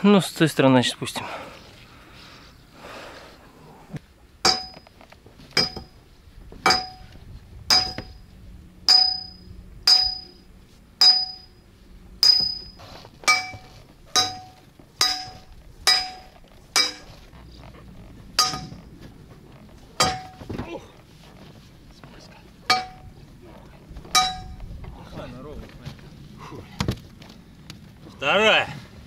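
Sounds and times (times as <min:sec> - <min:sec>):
metal pipe ringing clangs: 0:04.4 - 0:05.0, 0:05.6 - 0:06.0, 0:06.6 - 0:07.1, 0:07.7 - 0:08.2, 0:08.9 - 0:10.4, 0:11.0 - 0:11.6, 0:12.2 - 0:17.2, 0:18.4 - 0:18.9, 0:20.0 - 0:20.5, 0:22.7 - 0:23.2, 0:24.1 - 0:24.6.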